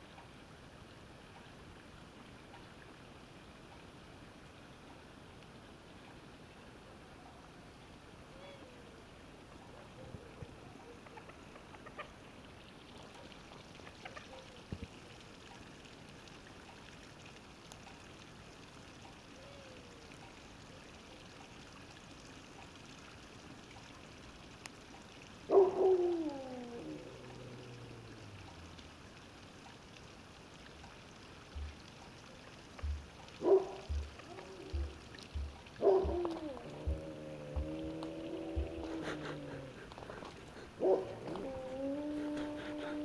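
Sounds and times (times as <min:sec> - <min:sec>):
faint night background: 0:00.0 - 0:43.0
animal call falling in pitch: 0:35.8 - 0:39.9.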